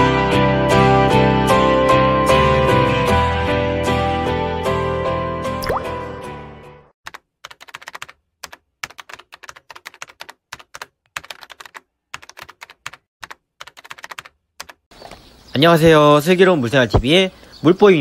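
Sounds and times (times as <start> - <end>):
computer keyboard typing: 7.1 - 14.9.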